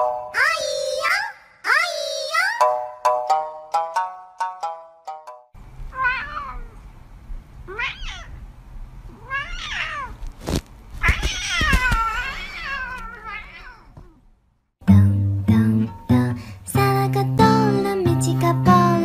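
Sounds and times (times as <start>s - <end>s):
cat meowing: 5.9s - 6.8s, 7.7s - 8.4s, 9.1s - 10.2s, 11.0s - 14.3s.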